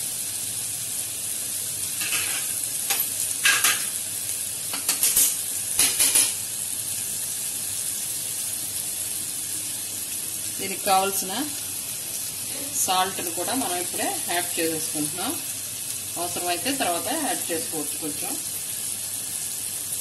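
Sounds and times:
onions sizzling in hot oil: 0:00.0 - 0:20.0
spoon scraping and knocking pot: 0:02.0 - 0:02.5, 0:04.7 - 0:06.4.

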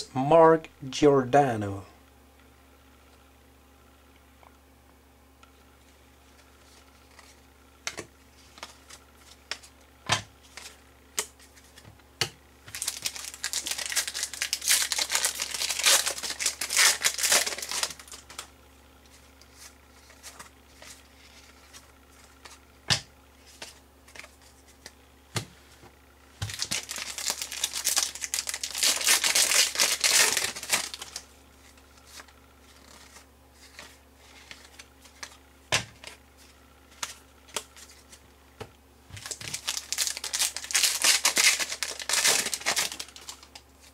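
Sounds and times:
card pack wrappers crinkling: 0:12.6 - 0:18.5, 0:26.4 - 0:35.4, 0:39.1 - 0:43.9.

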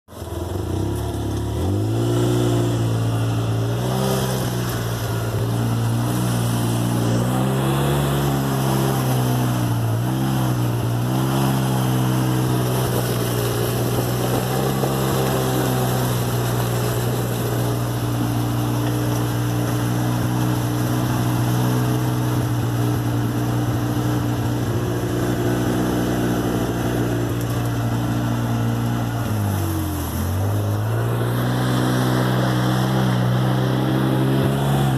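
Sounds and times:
utility vehicle engine droning: 0:00.1 - 0:34.9.

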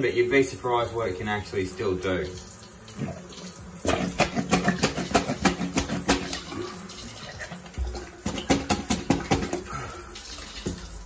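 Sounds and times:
plunger squelching in drain water: 0:02.3 - 0:11.0.

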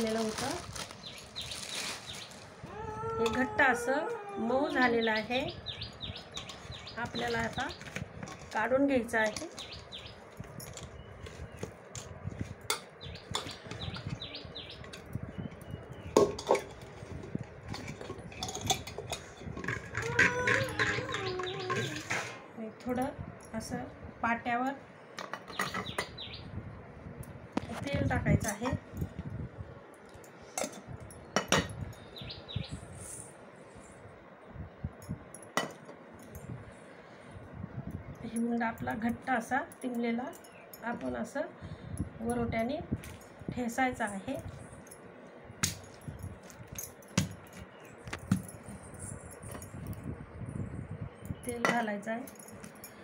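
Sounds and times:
metal pot knocking and scraping: 0:16.1 - 0:22.4.

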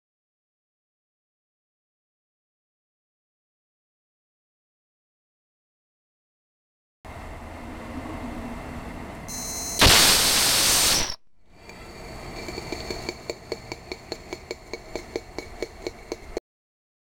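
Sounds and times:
faint steady hiss: 0:09.7 - 0:12.1
rocket igniter rushing hiss: 0:09.8 - 0:11.2.

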